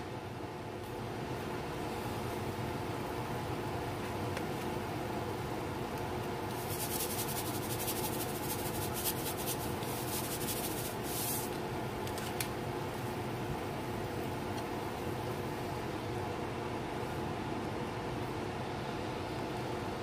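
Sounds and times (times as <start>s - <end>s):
steady background hum: 0.0s - 20.0s
salt grains rattling into pan: 6.6s - 11.5s.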